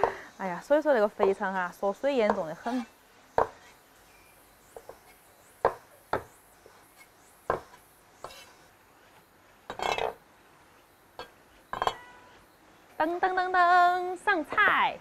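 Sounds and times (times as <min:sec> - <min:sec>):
knife chopping on wooden board: 0:03.4 - 0:03.6, 0:05.6 - 0:06.3, 0:07.5 - 0:08.5.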